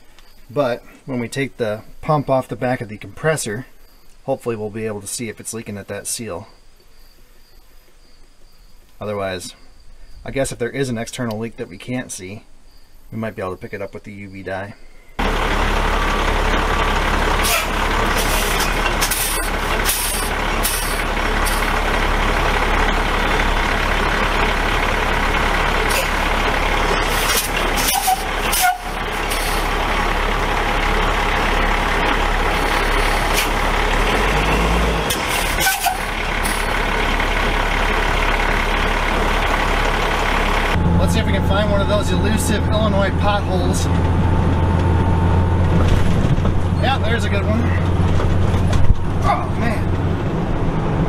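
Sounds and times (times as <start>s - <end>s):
road and wind noise: 15.0s - 51.0s
truck engine running: 15.2s - 51.0s.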